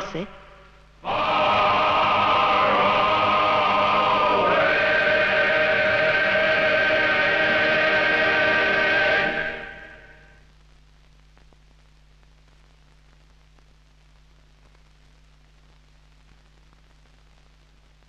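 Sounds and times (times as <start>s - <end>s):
low hum: 0.0s - 10.5s
film soundtrack hiss: 0.0s - 18.0s
clicks and crackles: 10.5s - 18.0s.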